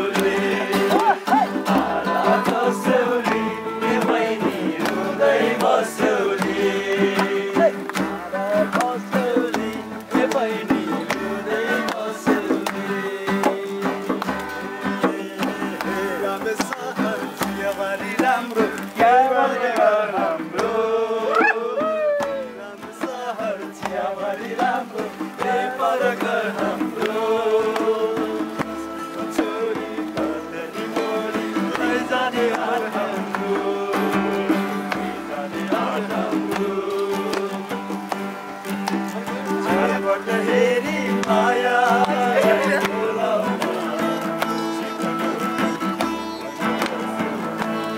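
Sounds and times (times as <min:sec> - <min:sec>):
group of voices singing: 0:00.0 - 0:47.9
strummed acoustic guitar: 0:00.0 - 0:47.9.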